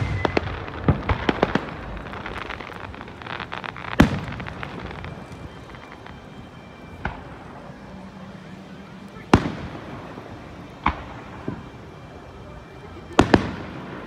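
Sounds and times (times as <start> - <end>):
loud echoing firework boom: 0.0 - 5.6
firework bangs: 0.0 - 14.0
firework crackling: 0.0 - 14.0.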